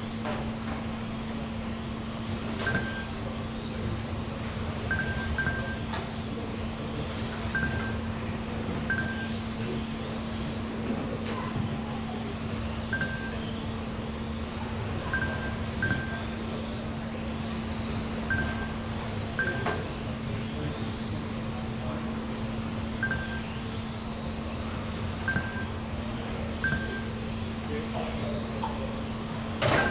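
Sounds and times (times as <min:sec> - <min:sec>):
short electronic beeps: 0:02.7 - 0:03.2, 0:04.9 - 0:05.9, 0:07.6 - 0:08.1, 0:08.9 - 0:09.4, 0:12.9 - 0:13.4, 0:15.1 - 0:16.3, 0:18.3 - 0:18.8, 0:19.4 - 0:19.7, 0:23.0 - 0:23.5, 0:25.3 - 0:25.8, 0:26.6 - 0:27.1.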